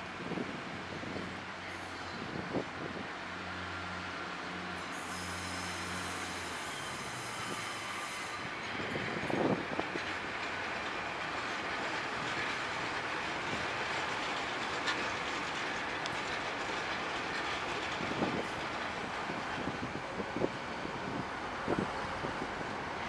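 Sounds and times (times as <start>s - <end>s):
train rumbling: 0.0s - 23.0s
wheels clattering over rail joints: 8.5s - 20.5s.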